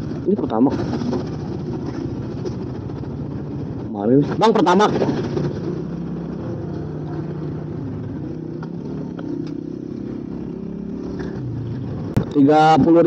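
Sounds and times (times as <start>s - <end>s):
scooter engine idling: 0.0s - 8.2s.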